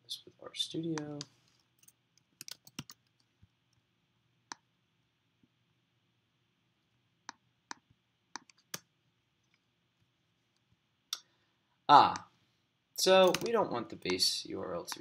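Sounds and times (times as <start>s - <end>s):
computer mouse clicks: 2.4s - 3.1s, 8.4s - 8.9s, 13.2s - 14.2s.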